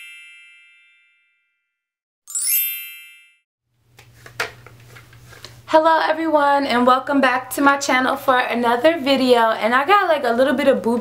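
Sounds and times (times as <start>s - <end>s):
bright chime: 2.3s - 3.4s.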